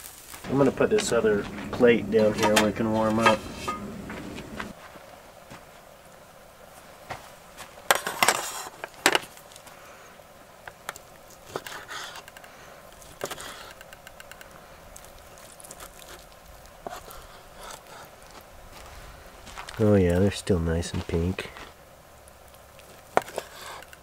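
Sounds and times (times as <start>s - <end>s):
cookware and utensils clinking: 0.5s - 4.7s.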